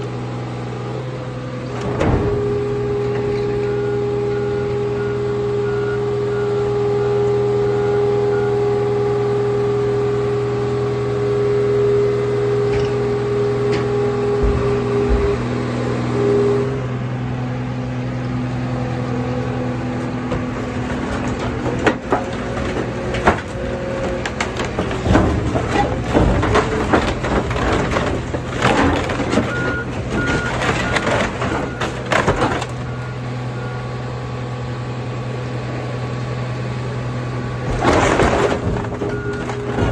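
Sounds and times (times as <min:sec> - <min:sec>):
heavy machinery humming and whining: 0:00.0 - 0:39.9
metal and glass crunching: 0:20.5 - 0:32.9, 0:37.7 - 0:39.9.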